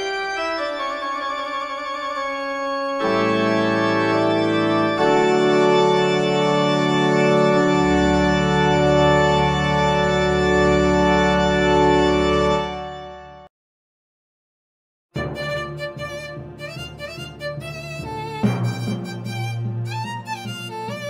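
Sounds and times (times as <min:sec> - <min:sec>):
sustained organ chords: 0:00.0 - 0:13.5.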